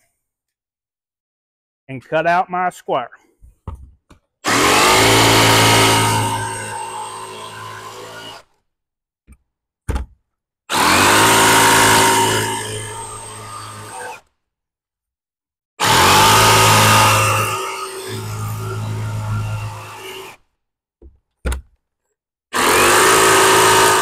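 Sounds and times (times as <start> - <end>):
jigsaw cutting board: 4.4 - 8.6, 9.3 - 14.4, 15.8 - 20.5, 22.5 - 24.0.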